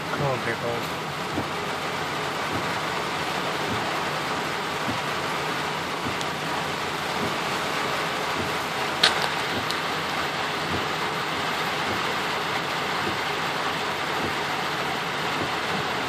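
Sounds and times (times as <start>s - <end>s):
heavy rain on car roof: 0.0s - 16.0s
windshield wipers sweeping: 0.1s - 16.0s
sharp click: 9.0s - 9.8s.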